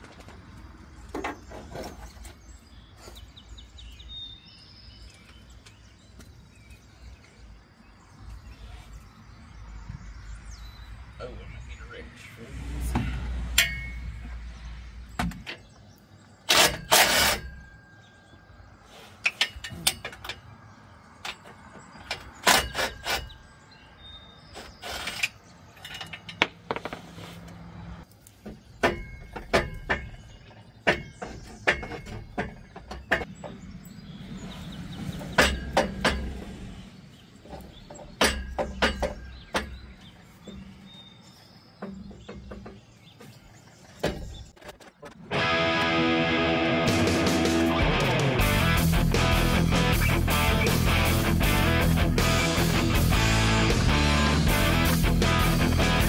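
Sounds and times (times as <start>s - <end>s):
metallic clanks of hand tools: 13.6s - 14.2s, 19.2s - 20.5s, 24.7s - 26.9s.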